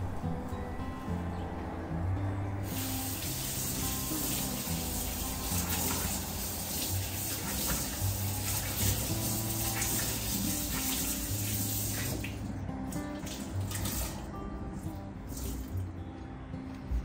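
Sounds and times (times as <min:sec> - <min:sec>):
background music: 0:00.0 - 0:17.0
water running into sink: 0:02.6 - 0:12.4, 0:13.0 - 0:14.3.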